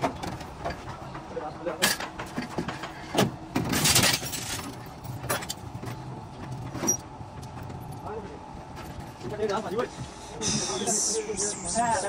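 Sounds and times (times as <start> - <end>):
metal knocks and clatter: 0.0 - 8.0.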